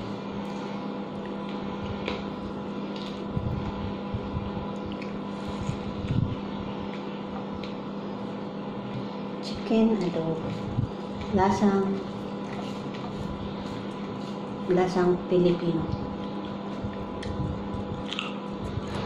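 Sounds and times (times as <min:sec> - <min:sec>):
steady electrical hum: 0:00.0 - 0:19.0
woman chewing food: 0:16.2 - 0:19.0.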